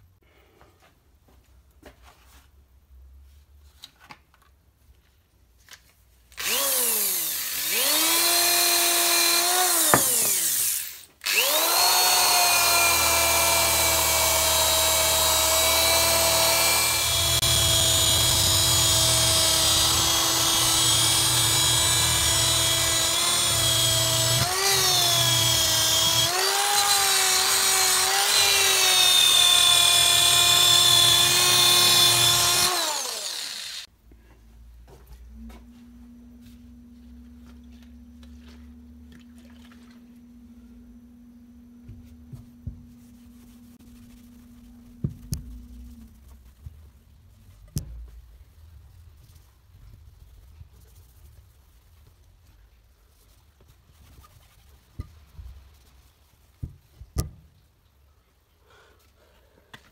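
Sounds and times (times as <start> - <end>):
electric drill running: 6.4 - 33.9.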